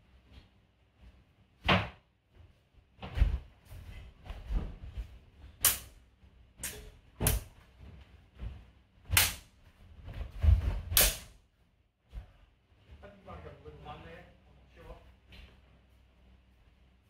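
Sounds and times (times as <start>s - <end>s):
footwork thuds on mats: 1.6s - 5.6s, 7.1s - 11.3s
sword blades clacking: 11.0s - 11.3s.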